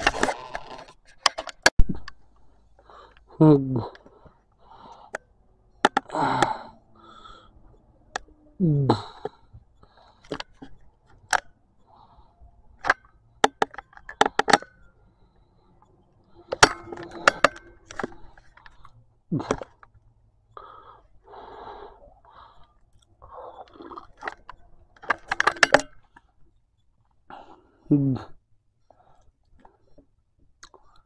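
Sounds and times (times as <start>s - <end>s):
handling clicks and knocks: 0.0s - 2.2s, 5.8s - 6.5s, 10.2s - 11.5s, 12.7s - 14.9s, 16.3s - 20.0s, 24.1s - 26.2s.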